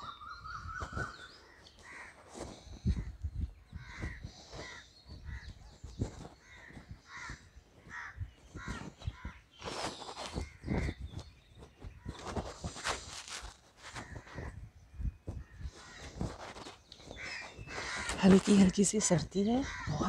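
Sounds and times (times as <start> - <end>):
crows cawing: 1.7 - 2.6, 3.8 - 5.5, 6.4 - 9.4, 15.4 - 18.7, 19.6 - 20.0.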